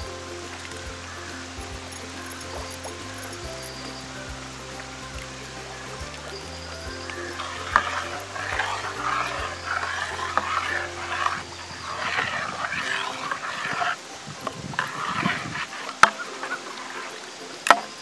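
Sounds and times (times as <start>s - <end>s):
soft background music: 0.0s - 18.0s
ladle scraping thick paste in pot: 7.4s - 14.0s, 14.8s - 17.1s.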